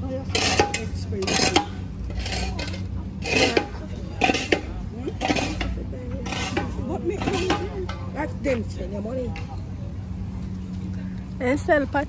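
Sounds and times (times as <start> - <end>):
faint voices: 0.0 - 12.0
trowel scraping brick and mortar: 0.2 - 7.8.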